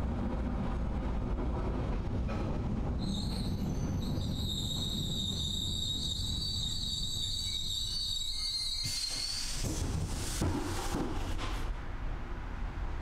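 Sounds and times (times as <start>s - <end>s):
train rumbling: 0.0s - 13.0s
wheels squealing on rails: 3.0s - 11.4s.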